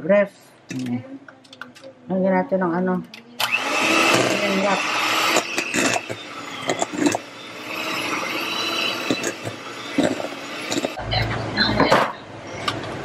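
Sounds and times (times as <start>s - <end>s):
electric hand mixer running: 3.4s - 11.0s.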